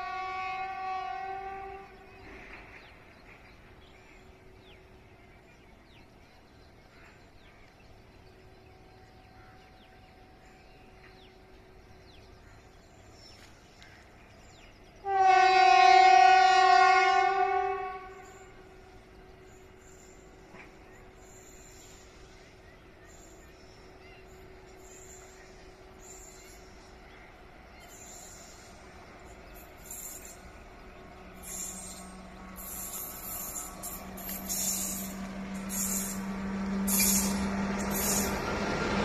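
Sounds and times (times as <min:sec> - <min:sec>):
train horn blast: 0:00.0 - 0:02.3, 0:15.0 - 0:18.8.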